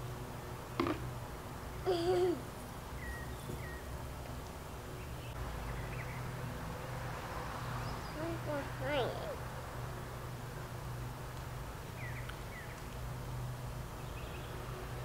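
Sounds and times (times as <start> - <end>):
faint bird chirps: 3.0 - 3.9.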